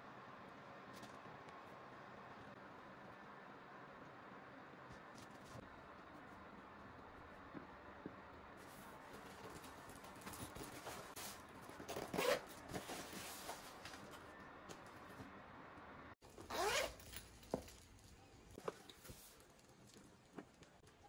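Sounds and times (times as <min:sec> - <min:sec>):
zipper being pulled shut: 0:11.9 - 0:12.5, 0:16.4 - 0:17.1.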